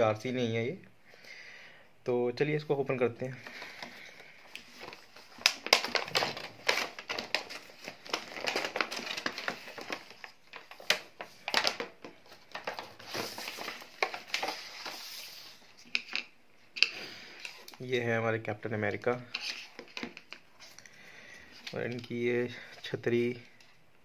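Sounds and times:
plastic packaging crinkling: 3.4 - 17.9.

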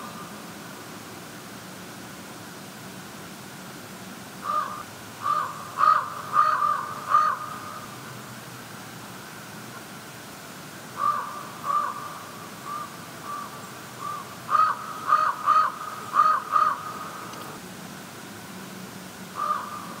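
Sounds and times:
crow cawing: 4.4 - 7.9, 11.0 - 17.4, 19.4 - 20.0.

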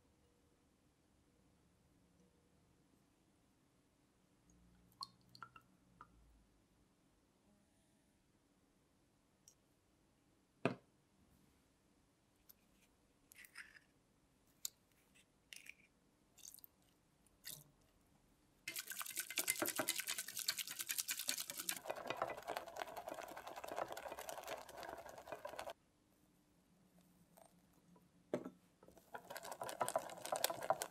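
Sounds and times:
whisk beating in a metal saucepan: 18.7 - 25.8, 29.0 - 30.9.

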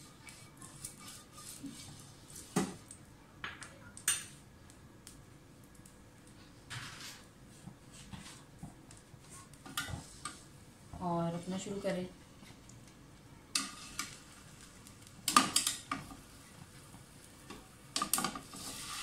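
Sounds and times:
faint brushing on a pan: 0.0 - 2.9, 6.4 - 12.6, 13.6 - 15.0, 18.2 - 19.0.

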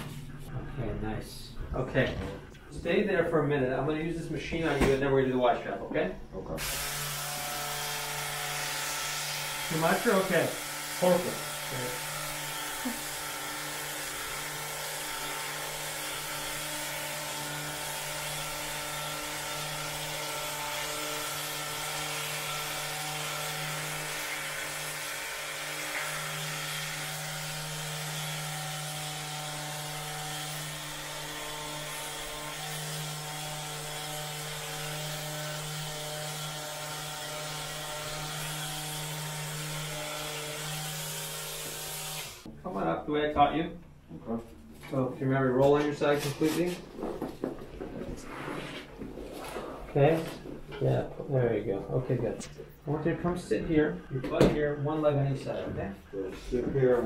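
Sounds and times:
massage gun motor buzz: 6.6 - 42.5.

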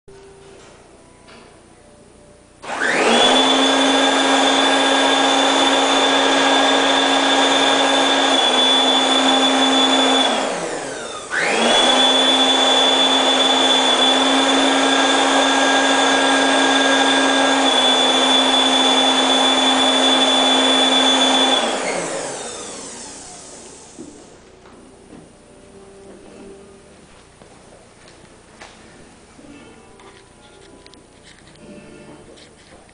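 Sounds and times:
electric blower motor whining: 2.6 - 24.5.

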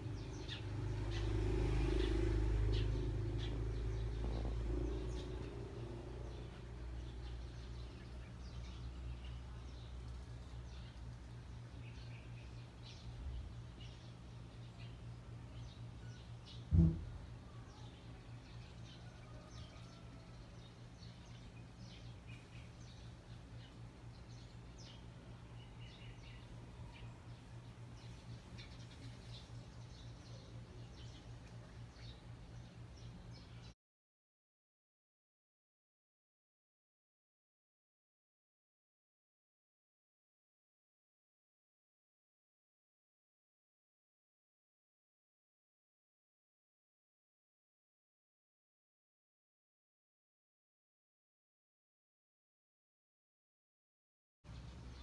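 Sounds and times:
faint bird chirps: 1.9 - 33.7
low steady hum: 2.6 - 33.8.

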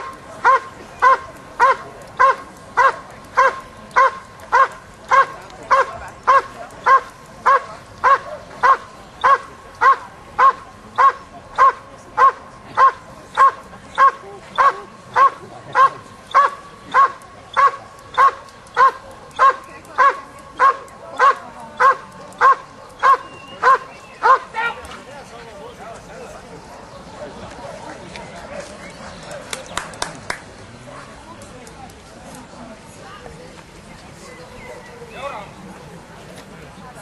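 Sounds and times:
dog barking rhythmically: 0.4 - 24.5.

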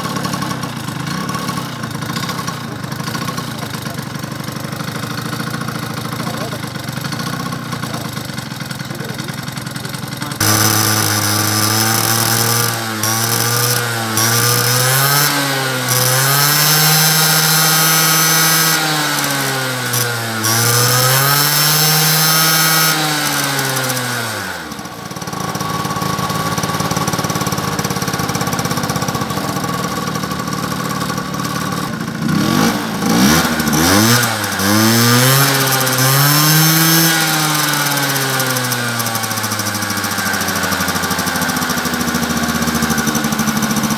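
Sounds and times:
scooter engine revving and idling: 0.0 - 43.9.

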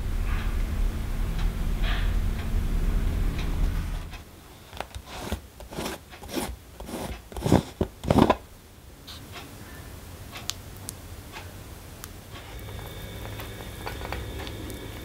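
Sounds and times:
jar lid scraping turns: 4.7 - 8.4.

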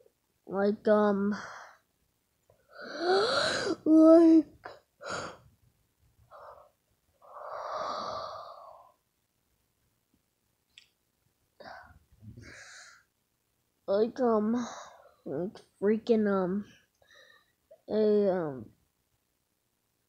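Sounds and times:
person breathy vocal noises: 2.7 - 4.4.

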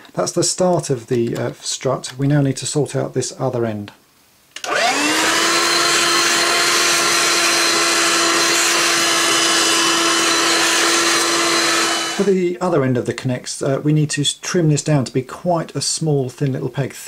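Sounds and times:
vacuum cleaner motor whine: 4.6 - 12.3.

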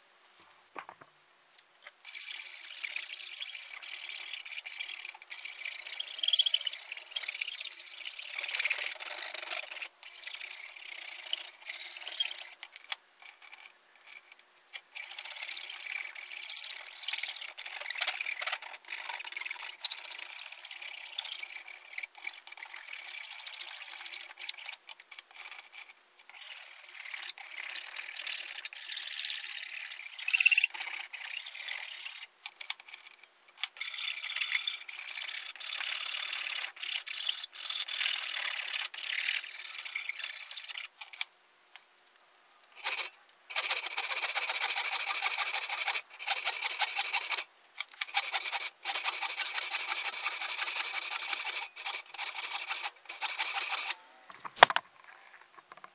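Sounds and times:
hand rasp scraping wood: 15.0 - 24.8, 42.8 - 54.0.

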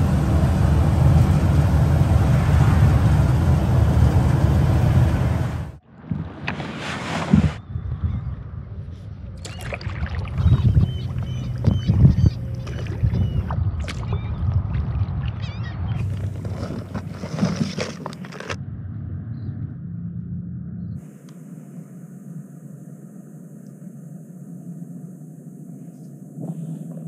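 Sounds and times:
paddle blades splashing: 6.1 - 7.6, 9.4 - 18.6
water sloshing against hull: 6.1 - 7.6, 9.4 - 18.6.

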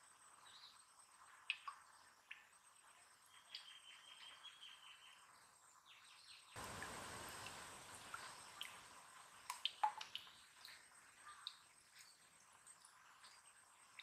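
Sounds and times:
soft even hiss: 5.8 - 14.0.

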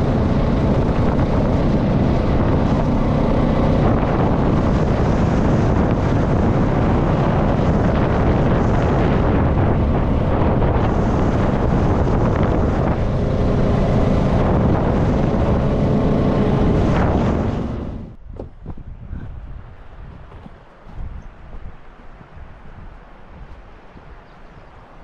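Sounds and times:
water rushing: 0.0 - 18.2.

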